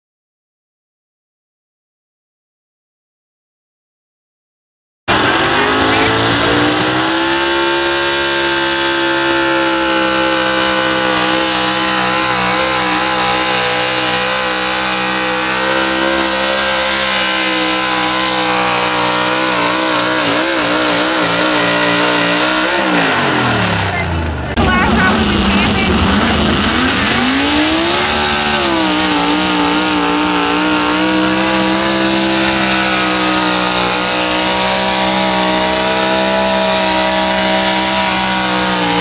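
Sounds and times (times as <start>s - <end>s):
truck engine at high revs: 5.1s - 39.0s.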